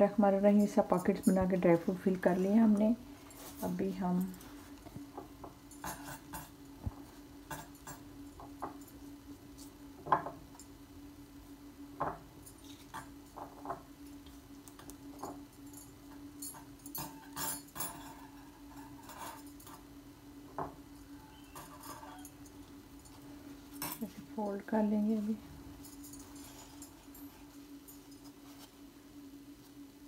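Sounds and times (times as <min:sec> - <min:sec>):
steady low hum: 0:00.0 - 0:30.0.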